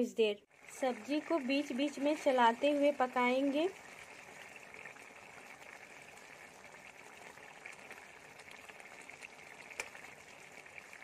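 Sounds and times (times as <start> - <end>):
gravy bubbling and crackling: 0.5 - 11.0.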